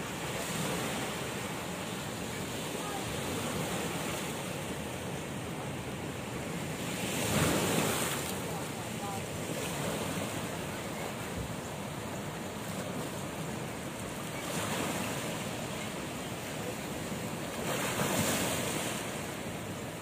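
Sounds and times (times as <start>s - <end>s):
sea waves washing over rocks: 0.0s - 20.0s.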